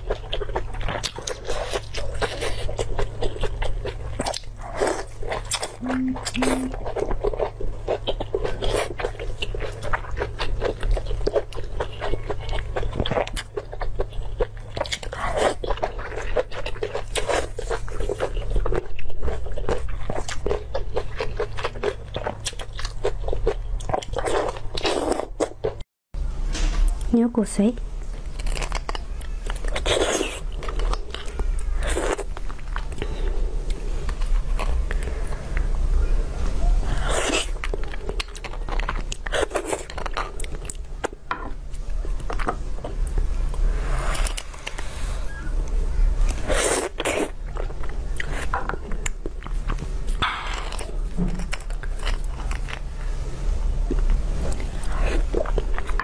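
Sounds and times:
chewing and slurping: 0.0s - 25.9s, 36.8s - 52.9s, 53.9s - 56.0s.

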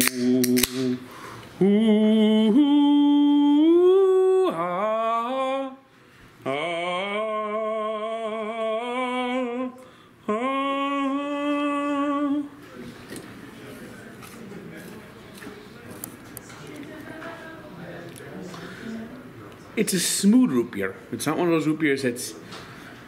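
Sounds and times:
man humming: 0.0s - 5.8s, 6.5s - 12.5s.

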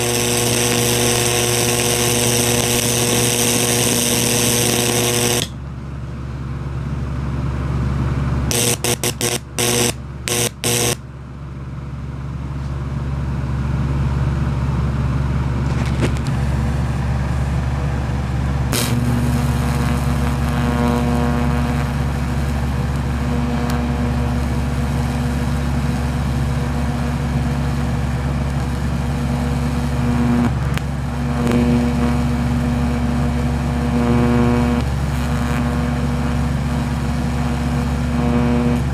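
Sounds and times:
electric arc buzzing: 0.0s - 5.6s, 8.5s - 11.0s, 18.7s - 38.9s
electric arc sharp bursts: 0.0s - 5.6s, 8.5s - 11.0s, 18.7s - 38.9s
loud electrical hum: 0.0s - 38.9s.

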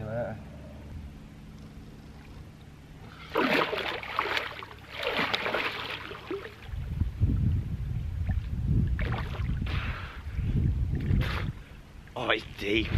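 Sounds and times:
water splashing and sloshing: 3.0s - 7.2s, 8.2s - 10.2s
low rumble: 6.4s - 12.0s.

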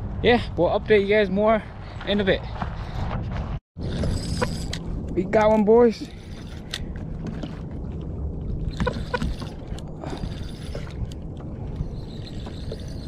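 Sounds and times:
wind rumble: 0.0s - 13.0s
water lapping against hull: 5.8s - 13.0s
brief squeaks: 8.7s - 11.0s, 11.8s - 13.0s.

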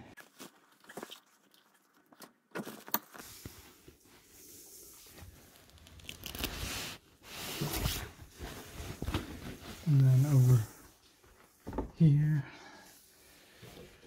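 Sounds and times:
upholstery rustling and scraping: 3.2s - 11.6s.

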